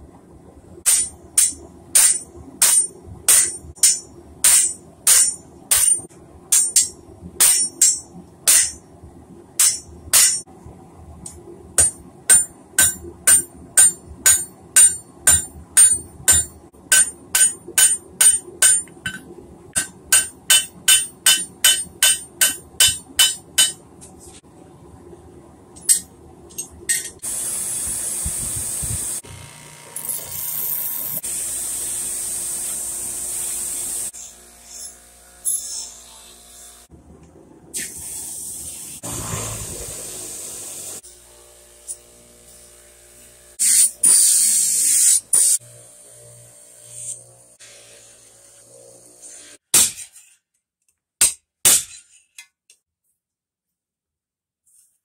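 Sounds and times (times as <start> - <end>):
hammer ringing on anvil: 0.9 - 8.8, 11.8 - 19.2, 19.8 - 23.8.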